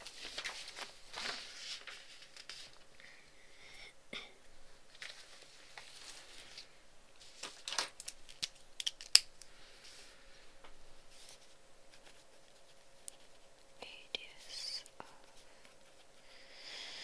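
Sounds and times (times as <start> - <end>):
paper rustling: 0.0 - 3.0, 4.9 - 9.2, 11.1 - 13.6
sharp clicks and snaps: 8.0 - 9.5.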